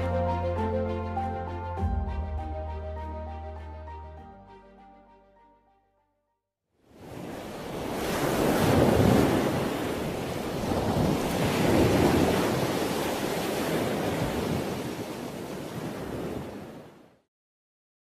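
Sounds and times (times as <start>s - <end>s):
sea waves rushing and washing: 6.8s - 17.3s.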